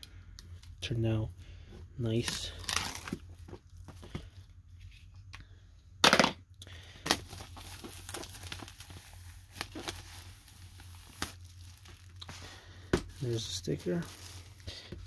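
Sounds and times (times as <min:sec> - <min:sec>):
plastic wrap tearing and crinkling: 0:02.2 - 0:03.4, 0:07.1 - 0:12.4, 0:13.1 - 0:14.7
sharp crack of plastic: 0:06.0 - 0:06.4.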